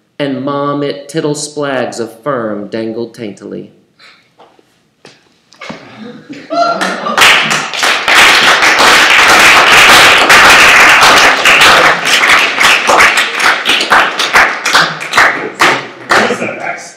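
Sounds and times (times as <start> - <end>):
audience applauding: 6.7 - 16.5.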